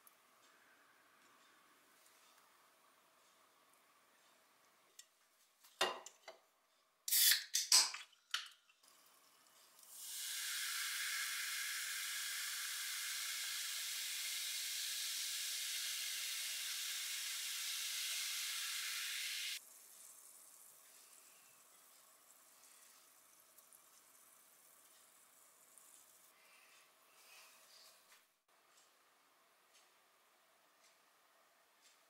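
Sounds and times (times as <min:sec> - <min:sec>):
can cracked open with hiss: 0:07.1 - 0:07.9
fizzing drink pouring into glass: 0:08.9 - 0:26.3.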